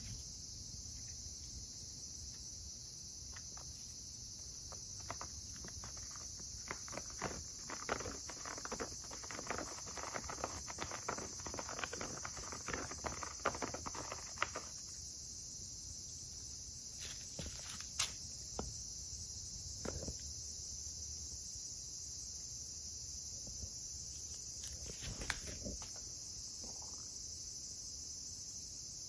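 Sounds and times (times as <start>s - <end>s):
steady high-pitched hiss: 0.0s - 29.0s
cat claws scratching rattan mat: 4.4s - 15.0s.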